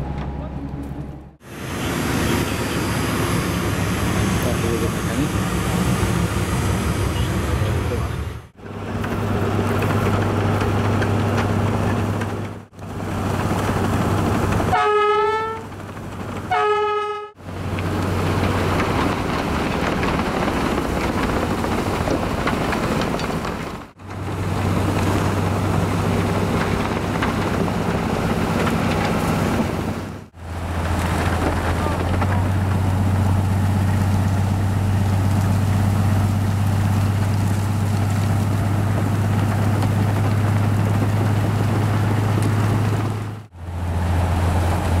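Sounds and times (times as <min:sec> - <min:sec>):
snow-blower train roaring: 0:01.4 - 0:45.0
train horn blasts: 0:14.7 - 0:15.7, 0:16.5 - 0:17.4.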